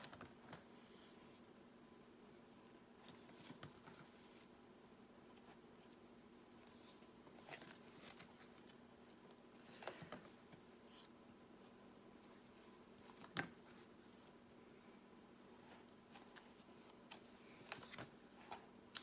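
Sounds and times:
binder pages rustling: 3.0 - 4.5, 5.3 - 11.1.

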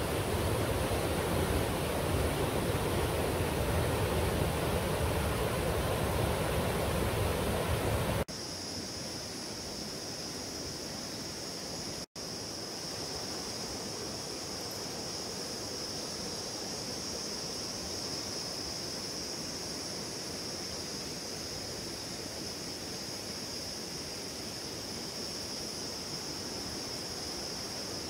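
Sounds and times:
river water rushing over stones: 0.0 - 8.3.

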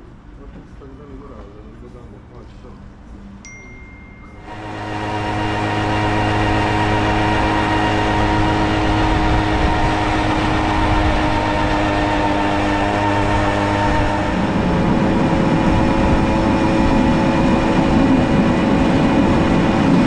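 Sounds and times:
moped engine running: 4.4 - 20.0
wind and road noise: 4.4 - 20.0.

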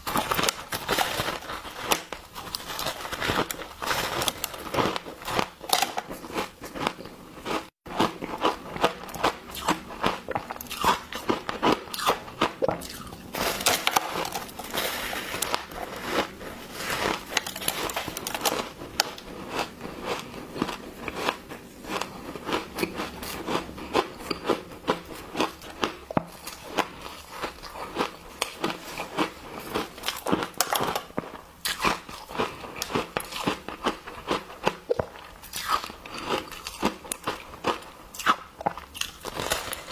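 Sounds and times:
ice crunching: 12.8 - 21.2.

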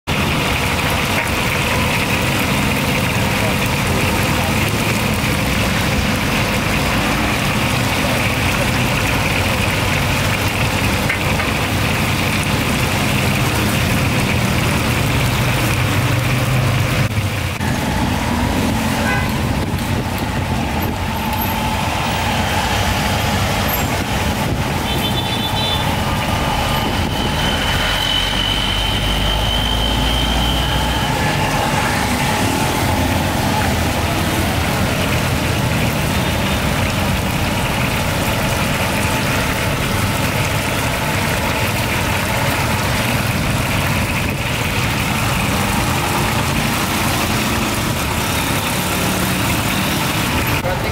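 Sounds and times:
motor traffic: 0.0 - 50.9.

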